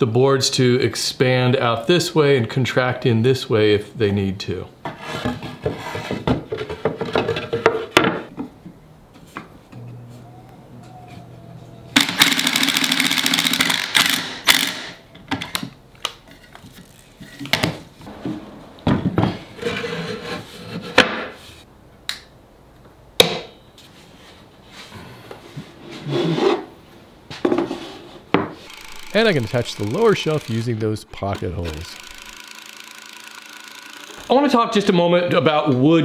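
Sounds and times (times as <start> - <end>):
cordless drill driving screw: 28.6 - 34.3
clamps clicking: 28.7 - 34.3.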